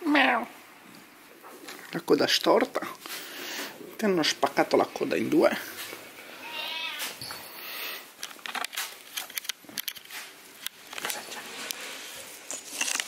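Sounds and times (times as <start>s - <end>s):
cat meowing: 6.4s - 7.2s
handling clicks and rustles: 8.2s - 13.0s.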